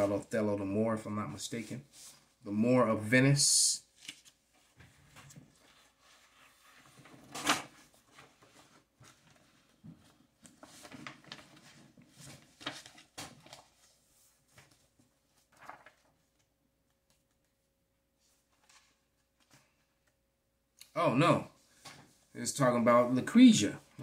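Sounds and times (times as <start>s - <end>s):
faint rustling and handling: 1.3s - 2.5s, 3.9s - 20.2s.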